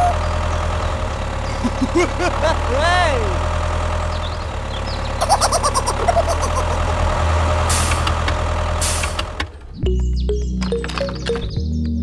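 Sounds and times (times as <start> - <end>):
tractor engine idling: 0.0 - 10.0
music: 9.8 - 12.0.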